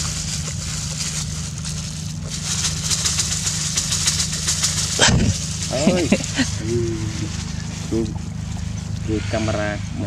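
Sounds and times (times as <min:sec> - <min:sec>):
motor running steadily: 0:00.0 - 0:10.0.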